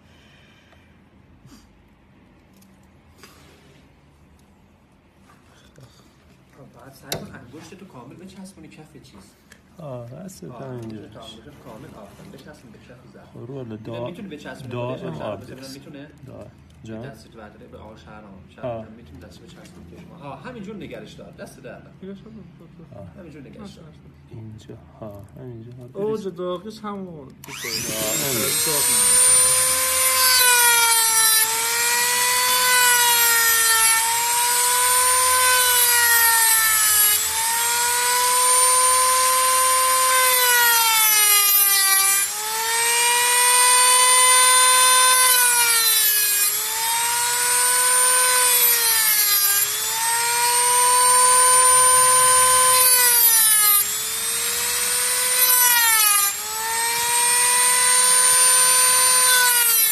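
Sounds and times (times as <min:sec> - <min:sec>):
rotary tool cutting metal: 0:27.4 - 0:59.9.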